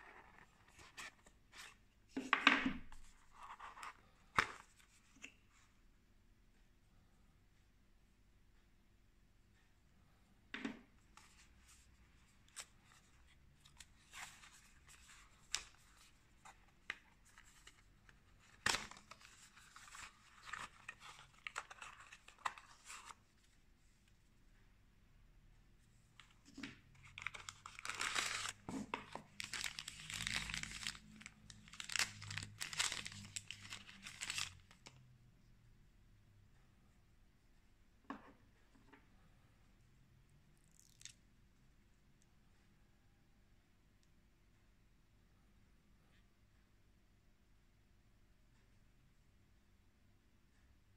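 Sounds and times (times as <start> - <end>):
paper packaging rustling: 13.7 - 23.2, 26.4 - 34.9.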